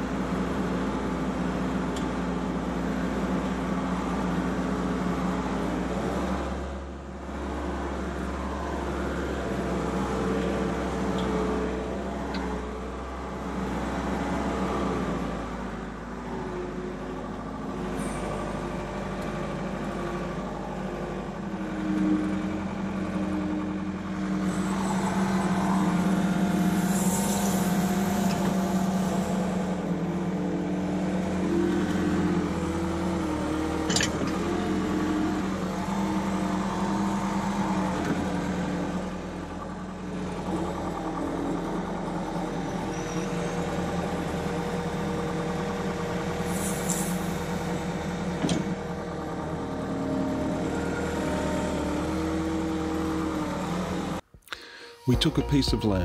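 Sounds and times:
loader engine running: 0.0 - 56.0.

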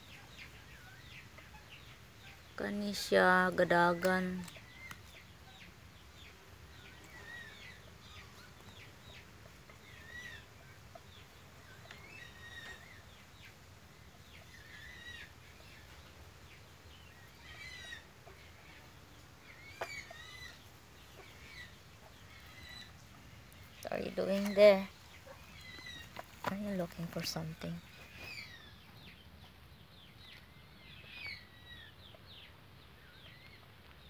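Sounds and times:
hens clucking: 3.2 - 29.7.

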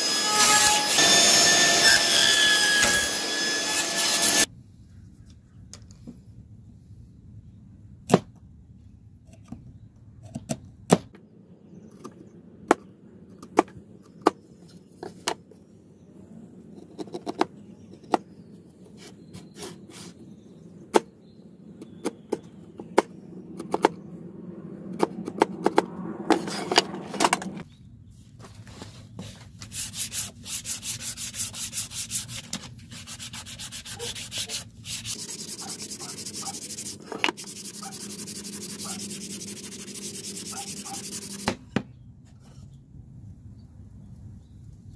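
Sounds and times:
chisel cutting wood: 0.0 - 4.5, 33.0 - 41.5
hand sanding with sponge: 29.2 - 41.5.

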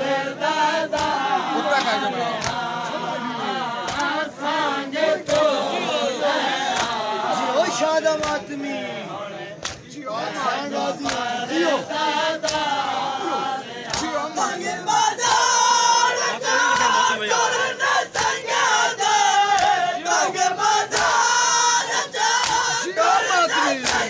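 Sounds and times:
crowd of men chanting: 0.0 - 24.0
hands slapping bare chests: 0.8 - 3.0, 3.8 - 5.6, 6.7 - 7.0, 8.1 - 8.5, 9.6 - 9.9, 11.0 - 11.3, 12.4 - 12.8, 13.8 - 14.2, 16.6 - 17.0, 18.1 - 19.8, 20.8 - 21.7, 22.3 - 24.0.

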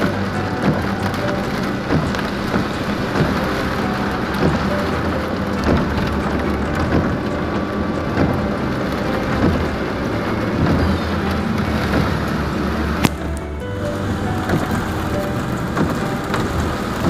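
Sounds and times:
engine and tyres on wet road: 0.0 - 17.0
heavy rain drumming on car: 0.0 - 17.0
windshield wipers sweeping: 0.0 - 17.0.

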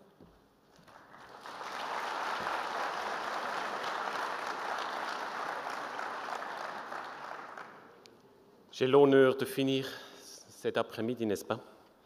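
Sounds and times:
audience applauding: 0.7 - 8.0.

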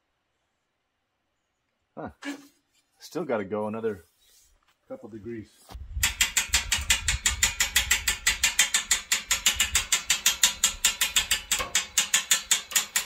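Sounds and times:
hand winch ratchet clicking: 6.0 - 13.0.

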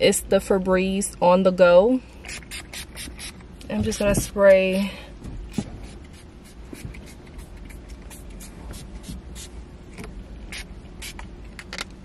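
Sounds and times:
spray bottle hissing mist: 2.3 - 4.2.

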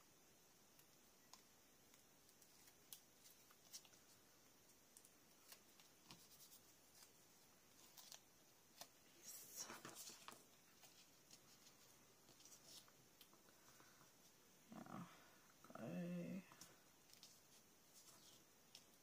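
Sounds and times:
paper rustling: 5.0 - 13.9, 16.5 - 19.0.

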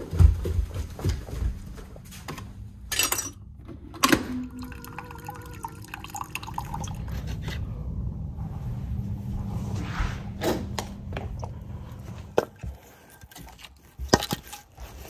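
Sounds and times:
coffee maker humming: 3.6 - 7.8
coffee dripping into mug: 4.6 - 7.2.

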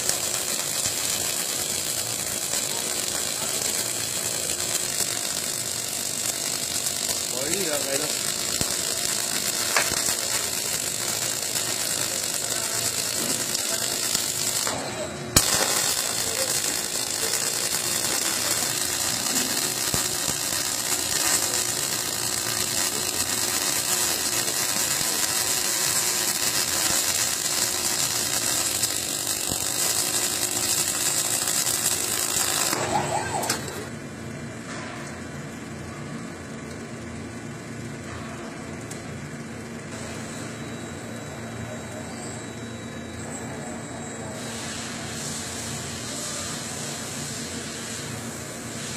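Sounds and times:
welding arc crackling: 0.0 - 33.9.

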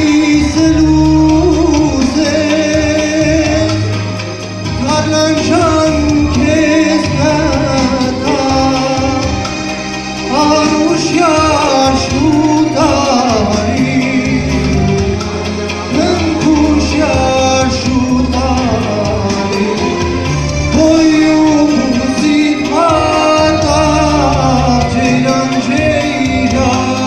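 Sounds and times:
instrumental accompaniment: 0.0 - 27.0
man singing into microphone: 0.0 - 27.0.

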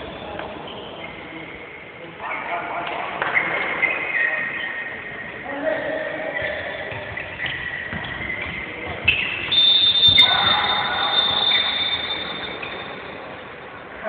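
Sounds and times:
high whistle tone: 9.1 - 13.1.

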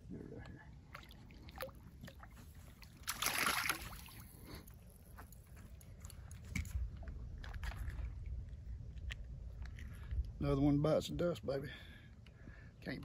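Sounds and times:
fish splashing at water surface: 2.9 - 4.3.

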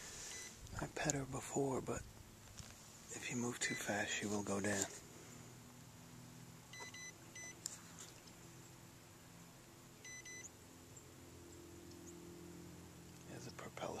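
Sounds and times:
faint low hum: 0.0 - 14.0
short electronic beeps: 0.3 - 0.6, 6.7 - 7.6, 10.0 - 10.5.

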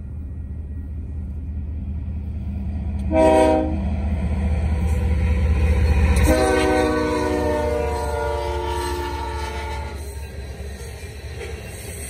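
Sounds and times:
locomotive engine rumble: 0.0 - 12.0
train horn blasts: 3.0 - 3.9, 6.2 - 10.1.

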